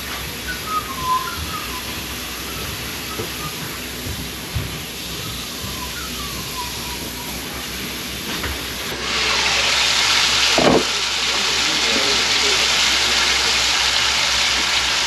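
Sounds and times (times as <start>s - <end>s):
pot boiling hiss: 0.0s - 15.0s
pork frying in a pan: 8.1s - 15.0s.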